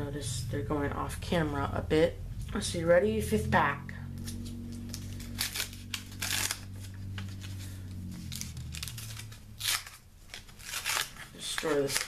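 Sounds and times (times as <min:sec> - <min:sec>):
low steady hum: 0:00.0 - 0:12.0
cardboard and paper tearing: 0:04.2 - 0:12.0.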